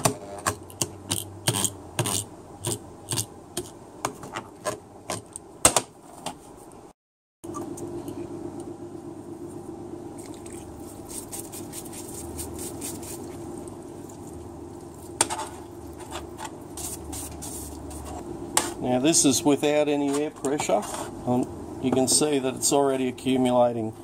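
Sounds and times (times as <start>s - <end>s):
pump humming: 7.5s - 14.8s.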